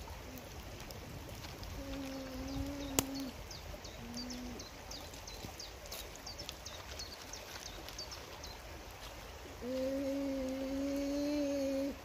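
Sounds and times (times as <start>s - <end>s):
small bird chirping: 1.8s - 8.6s.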